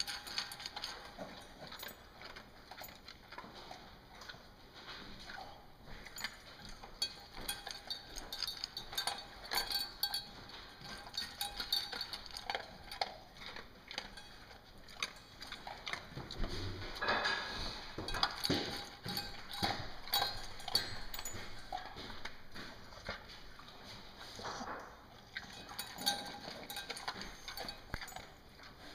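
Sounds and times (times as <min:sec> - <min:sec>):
dog eating from metal bowl: 0:00.0 - 0:28.9.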